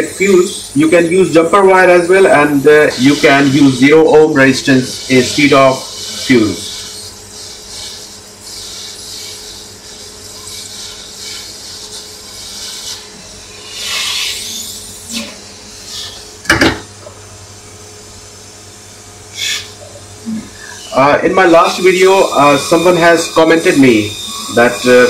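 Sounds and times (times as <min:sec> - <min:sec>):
hot air gun hissing: 0:00.0 - 0:16.8, 0:19.3 - 0:19.9, 0:20.5 - 0:25.0
sharp knock: 0:16.5 - 0:16.9.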